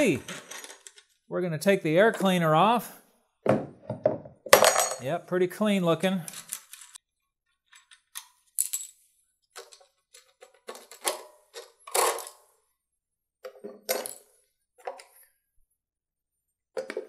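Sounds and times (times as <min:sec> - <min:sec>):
plastic parts clicking and clattering: 0:00.2 - 0:01.2, 0:06.2 - 0:07.0, 0:07.6 - 0:08.8, 0:09.5 - 0:12.6, 0:13.4 - 0:15.3, 0:16.8 - 0:17.0.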